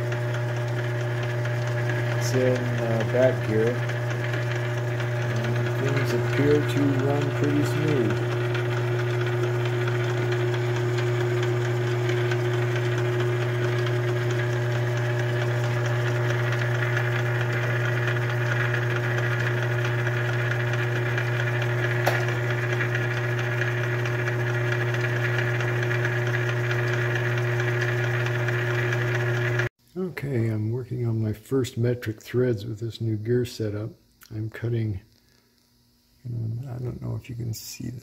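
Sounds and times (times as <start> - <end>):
lathe gears humming and whining: 0.0 - 29.7.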